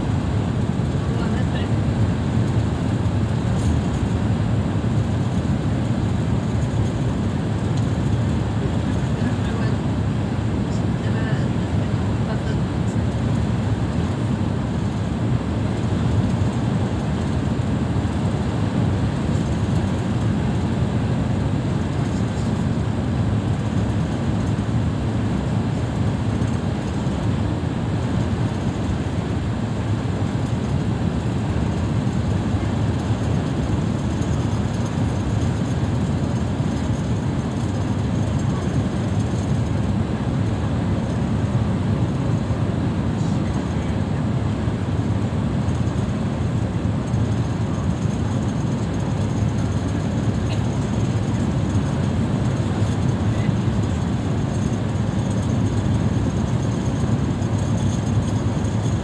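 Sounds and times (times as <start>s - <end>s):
road and engine rumble in vehicle: 0.0s - 59.0s.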